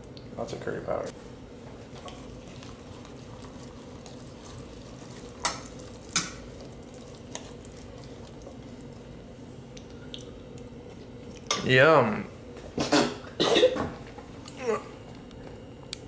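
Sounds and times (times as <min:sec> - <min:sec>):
faint hum: 0:00.0 - 0:16.0
fork stirring pasta: 0:01.9 - 0:09.0.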